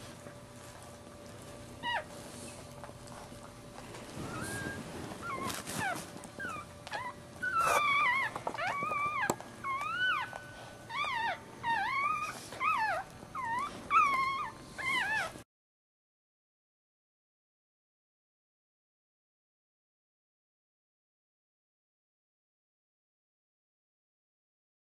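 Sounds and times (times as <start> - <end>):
puppy whimpering: 0.3 - 15.4.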